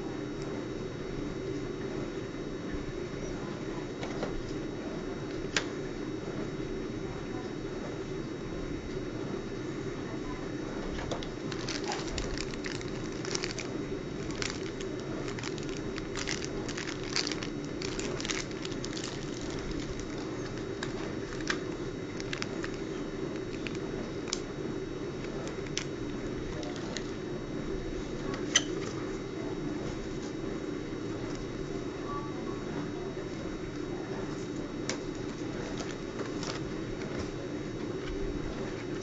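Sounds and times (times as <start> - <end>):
steady low hum: 0.0 - 39.0
cardboard and paper crackling: 11.2 - 24.5, 25.2 - 27.2, 35.2 - 37.4.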